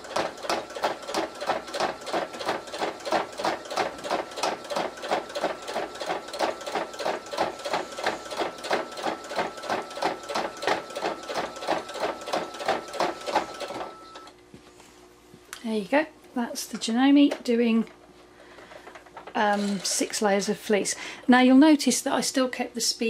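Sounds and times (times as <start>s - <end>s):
sewing machine needle strokes: 0.1s - 14.3s.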